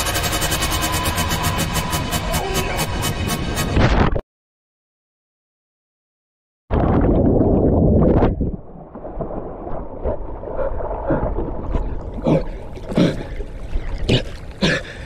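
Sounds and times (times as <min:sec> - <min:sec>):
underwater rush of bubbles: 0:06.7 - 0:14.1
water splashes: 0:06.7 - 0:15.0
water sloshing and lapping: 0:06.9 - 0:15.0.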